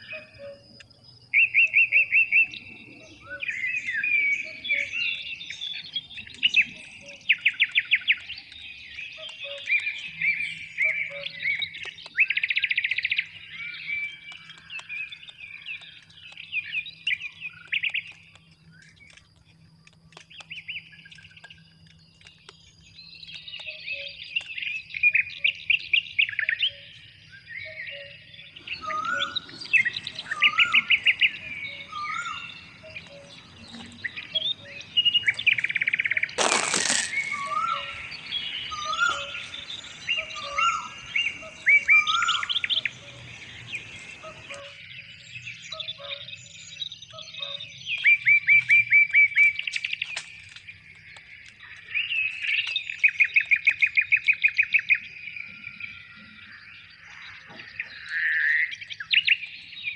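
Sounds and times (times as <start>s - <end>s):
birds chirping trills: 0.0s - 59.9s
bird whistling rising note: 28.7s - 44.8s.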